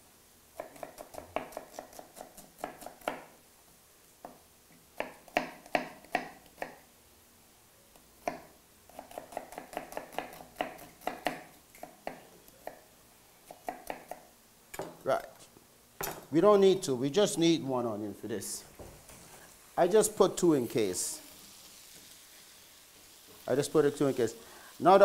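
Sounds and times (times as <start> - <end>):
knife chopping on cutting board: 0.6 - 3.3, 8.2 - 12.8, 13.5 - 14.2.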